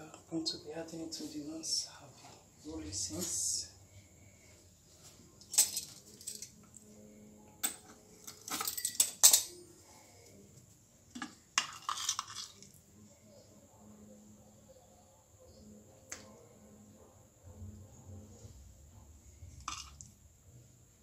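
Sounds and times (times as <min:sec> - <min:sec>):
metal utensils clinking on stone: 0:05.4 - 0:06.6, 0:07.6 - 0:09.6, 0:11.2 - 0:12.7, 0:19.6 - 0:20.0.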